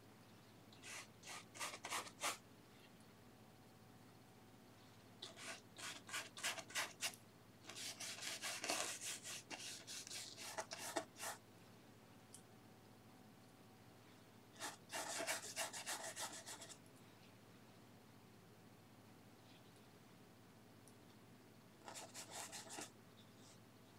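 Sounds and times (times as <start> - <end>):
paintbrush scrubbing on canvas: 0.8 - 2.4, 5.3 - 7.1, 7.7 - 11.4, 21.9 - 22.9.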